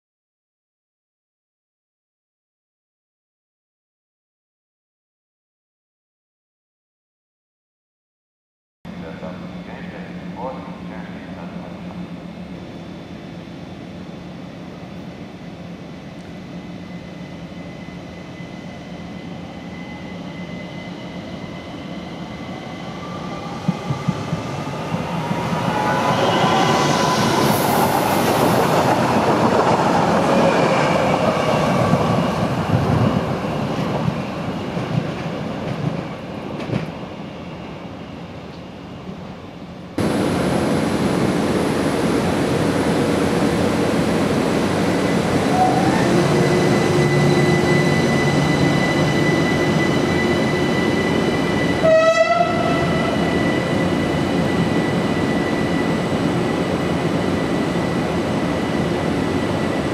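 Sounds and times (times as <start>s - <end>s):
standing train hum: 8.9s - 59.9s.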